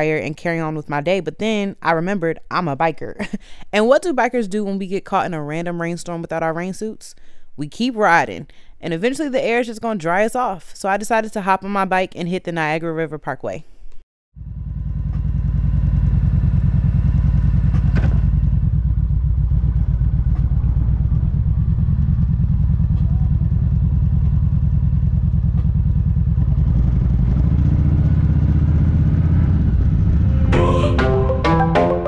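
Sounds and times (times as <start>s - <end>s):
motorcycle engine rumble: 14.4s - 30.9s.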